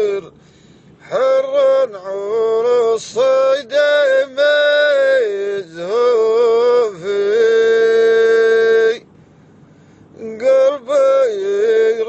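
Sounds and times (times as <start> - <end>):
person singing a cappella: 1.0 - 9.0, 10.2 - 12.0.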